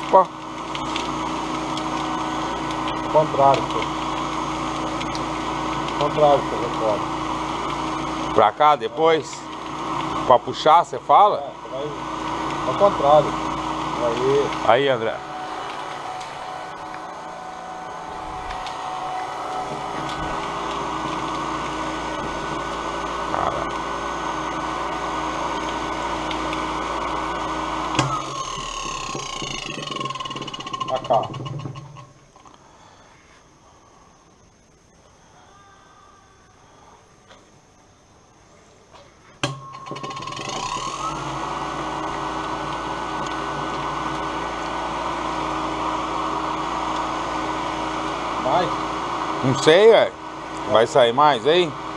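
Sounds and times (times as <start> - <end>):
cotton candy machine motor whir: 0.0 - 32.8, 39.4 - 51.9.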